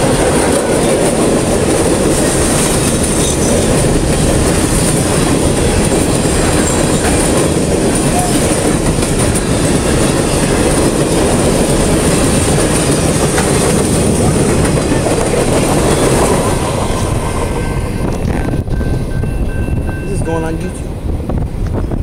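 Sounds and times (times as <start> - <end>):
freight train rumbling past: 0.0 - 22.0.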